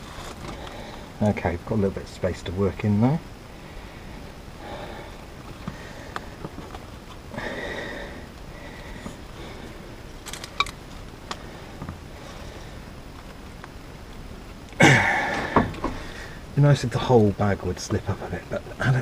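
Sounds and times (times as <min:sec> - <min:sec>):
man breathing and sniffing: 0:00.0 - 0:01.2, 0:03.5 - 0:10.6, 0:11.2 - 0:13.2, 0:14.8 - 0:16.6.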